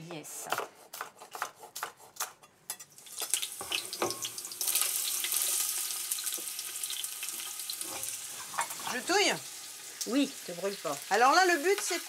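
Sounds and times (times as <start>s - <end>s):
knife chopping on wooden board: 0.4s - 2.4s
food sizzling in hot fat: 1.8s - 12.0s.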